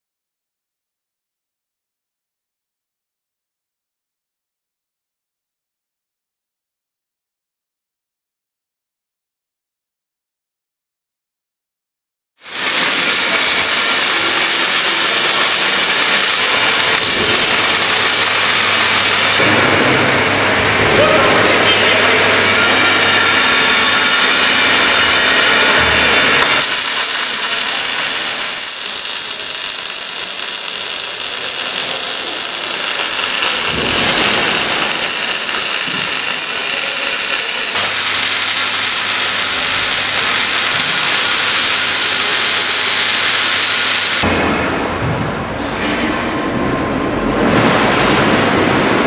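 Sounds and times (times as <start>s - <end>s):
welding arc hissing and crackling: 12.4s - 19.5s, 22.9s - 44.3s.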